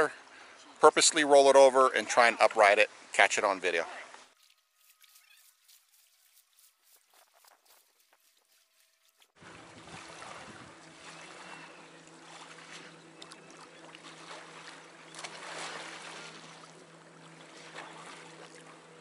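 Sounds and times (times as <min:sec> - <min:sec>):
paddle strokes splashing: 0:03.9 - 0:19.0
water lapping against hull: 0:08.3 - 0:19.0
steady low hum: 0:09.4 - 0:19.0.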